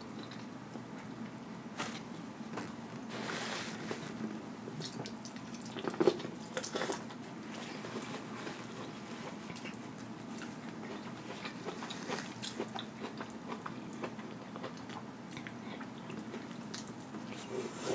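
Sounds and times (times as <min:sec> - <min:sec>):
chewing: 0:04.8 - 0:17.7.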